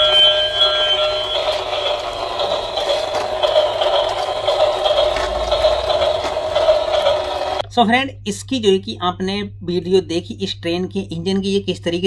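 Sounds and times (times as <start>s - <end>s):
toy train electronic beeps: 0.0s - 7.6s
toy train rattling on tiles: 0.0s - 7.6s.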